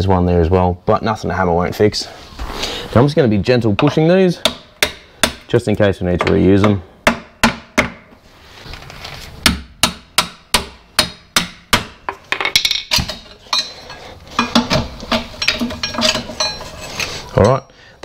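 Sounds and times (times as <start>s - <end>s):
hammer striking steel: 9.5s - 12.2s
metallic knocks and clinking: 12.0s - 17.7s.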